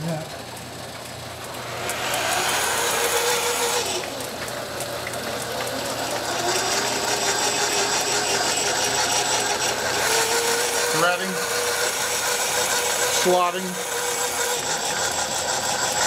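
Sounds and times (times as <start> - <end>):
machine clatter with fine ticks: 4.0 - 6.6.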